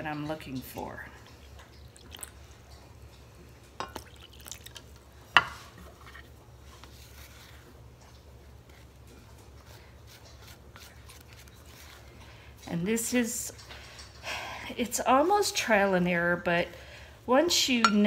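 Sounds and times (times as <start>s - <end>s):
glass cup clinking: 3.8s - 4.6s
water pouring into flour: 3.9s - 4.8s
spatula scraping dry flour: 9.5s - 12.1s.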